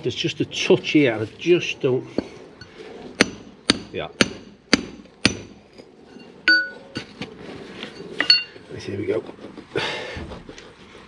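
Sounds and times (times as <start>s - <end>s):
steel bar striking brick: 2.1s - 8.6s
ringing metal clang: 5.2s - 7.1s, 8.2s - 8.6s.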